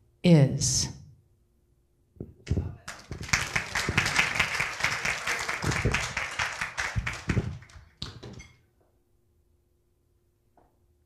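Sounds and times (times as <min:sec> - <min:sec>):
crowd applauding: 0:02.8 - 0:08.2.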